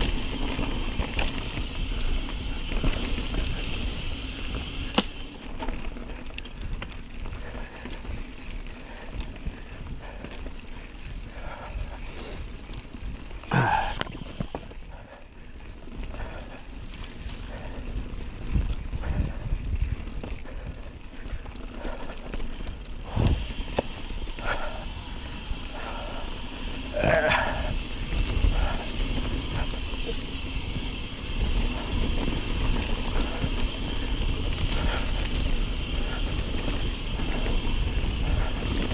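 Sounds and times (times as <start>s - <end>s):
bike rattling and clicking: 0.0s - 38.9s
bike tyres rolling on dirt: 0.0s - 38.9s
wind rush on microphone: 16.1s - 38.9s.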